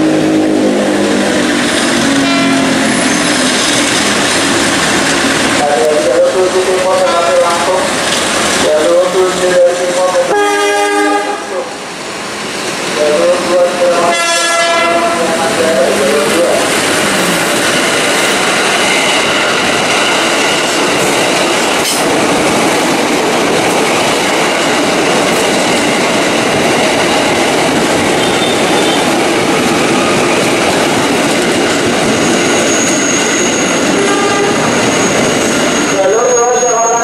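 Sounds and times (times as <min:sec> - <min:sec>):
train wheels clacking on rails: 0:01.0 - 0:10.2, 0:12.4 - 0:36.1
thin high squeal: 0:32.3 - 0:33.8.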